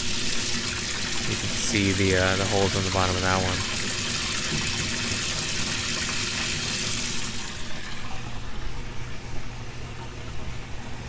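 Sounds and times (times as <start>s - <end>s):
hose water splashing: 0.0s - 8.3s.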